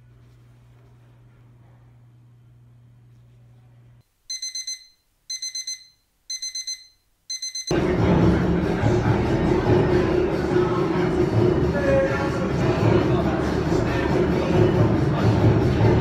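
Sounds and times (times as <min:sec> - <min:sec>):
alarm clock beeping: 0:04.3 - 0:07.8.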